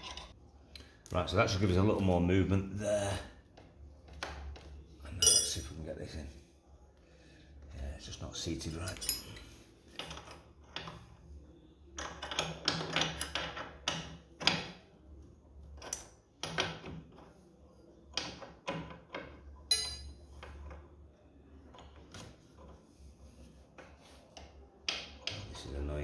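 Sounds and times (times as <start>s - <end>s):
ringing clink: 5.2s - 5.6s, 19.7s - 20.2s.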